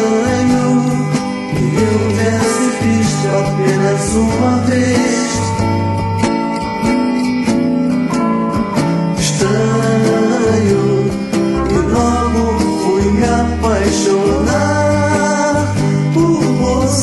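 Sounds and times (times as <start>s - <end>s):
person singing: 0.0s - 5.7s, 9.2s - 17.0s
guitar: 0.0s - 17.0s
pop-rock song: 0.0s - 17.0s
stepping bass line: 0.1s - 17.0s.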